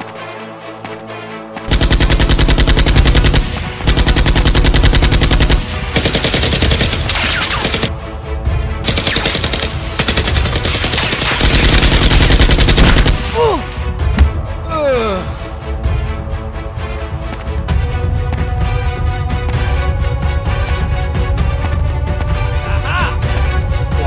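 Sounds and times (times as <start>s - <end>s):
background music: 0.0s - 24.0s
machine-gun bursts: 1.7s - 7.9s, 8.9s - 13.4s.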